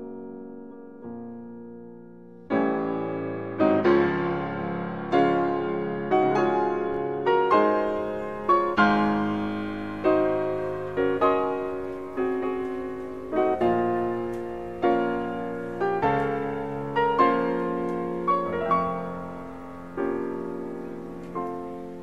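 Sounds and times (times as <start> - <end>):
slow solo piano: 0.0 - 22.0.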